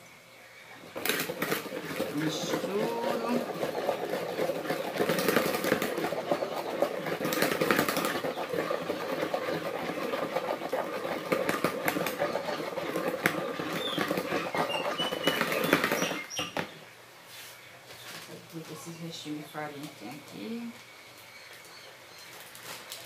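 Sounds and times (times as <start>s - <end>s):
batter being beaten: 1.0s - 16.1s.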